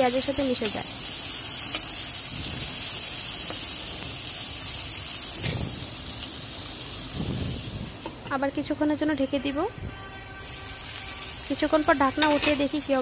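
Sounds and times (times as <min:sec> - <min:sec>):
oil sizzling in a pan: 0:00.0 - 0:09.4, 0:10.4 - 0:13.0.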